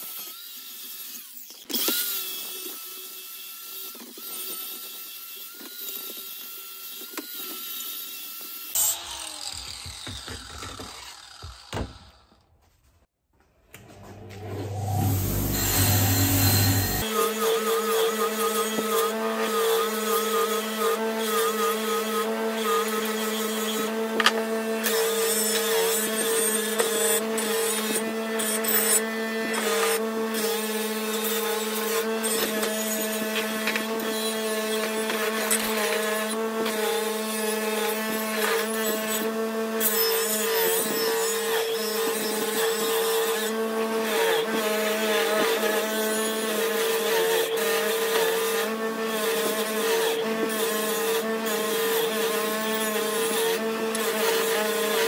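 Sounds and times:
bench grinder motor humming: 5.6 - 12.5, 13.8 - 55.0
metal grinding on wheel: 13.9 - 17.1.

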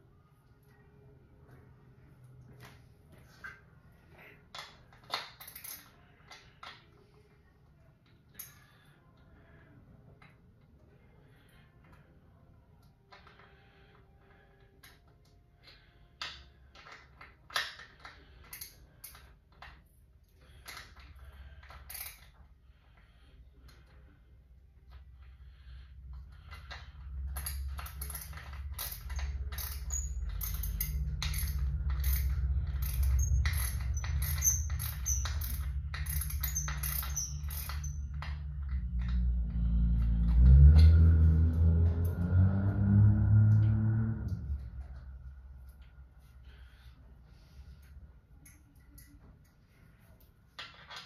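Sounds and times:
low steady hum: 0.0 - 51.0.

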